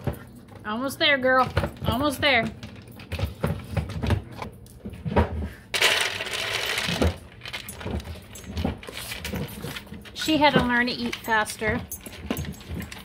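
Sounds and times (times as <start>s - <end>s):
dog eating kibble from plastic bowl: 1.4s - 4.6s, 5.8s - 13.0s.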